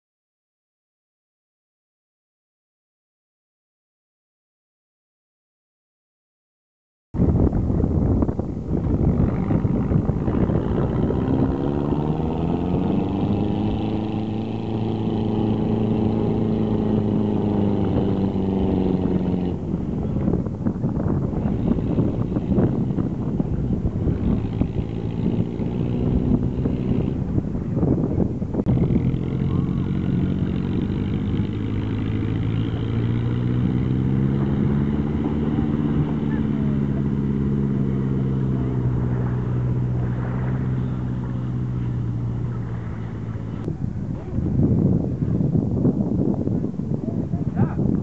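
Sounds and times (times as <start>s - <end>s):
wheels spinning in sand: 7.4s - 48.0s
truck engine revving hard: 8.8s - 43.7s.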